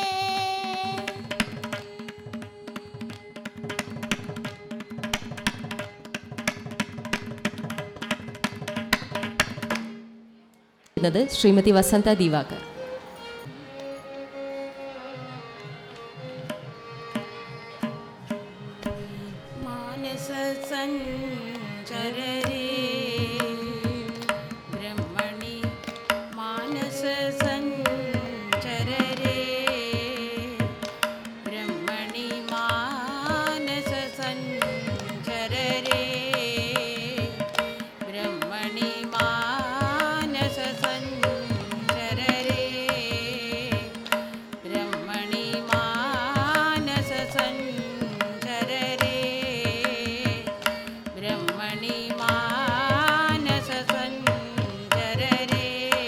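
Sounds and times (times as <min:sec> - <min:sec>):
women singing: 0:00.0 - 0:03.6, 0:19.0 - 0:56.0
violin: 0:00.0 - 0:56.0.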